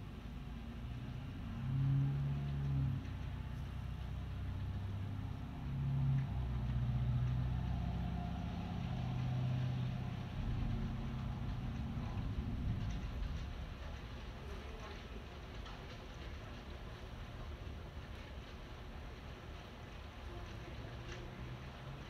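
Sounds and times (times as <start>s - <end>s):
rain falling: 0.0s - 22.0s
low rumble: 0.6s - 17.6s.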